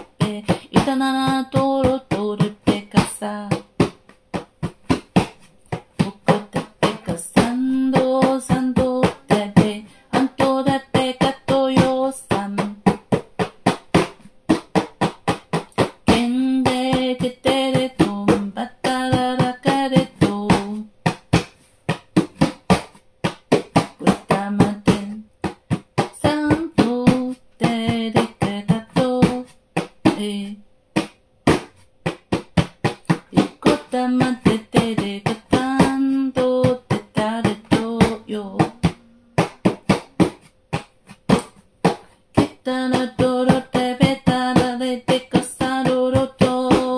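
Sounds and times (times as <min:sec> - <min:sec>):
person singing wordless syllables: 0:33.4 - 0:39.5.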